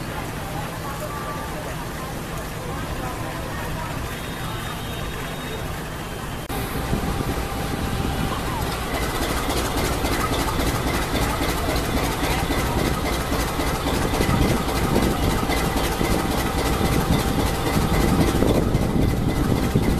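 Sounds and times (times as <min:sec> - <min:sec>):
train wheels rumbling: 0:00.0 - 0:19.9.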